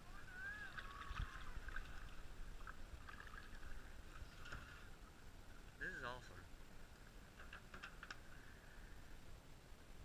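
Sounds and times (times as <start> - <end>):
water gurgling and lapping: 0.0 - 9.0
small irregular splashes: 0.2 - 5.2.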